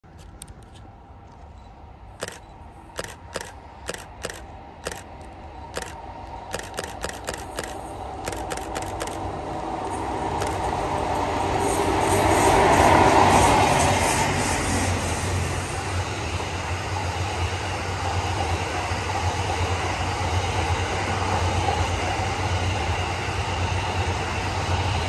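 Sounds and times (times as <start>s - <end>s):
train running noise: 0.0s - 25.0s
camera shutter clicks: 2.2s - 10.6s.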